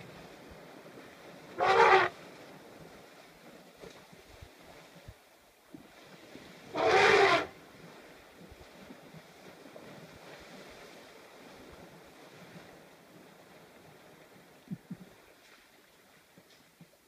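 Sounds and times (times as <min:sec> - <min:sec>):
distant water sloshing: 0:00.0 - 0:17.0
wind on microphone: 0:05.8 - 0:15.2.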